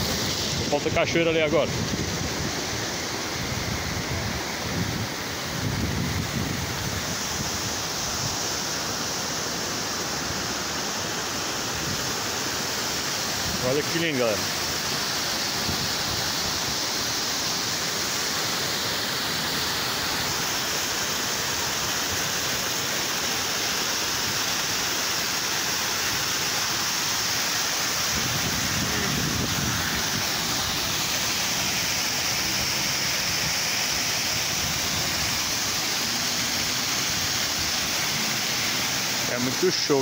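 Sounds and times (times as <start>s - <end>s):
small waterfall rushing: 0.0s - 40.0s.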